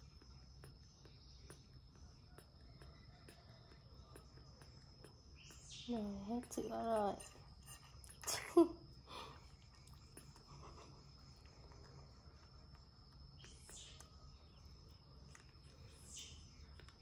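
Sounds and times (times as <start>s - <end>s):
baby monkey sucking bottle: 0.0s - 17.0s.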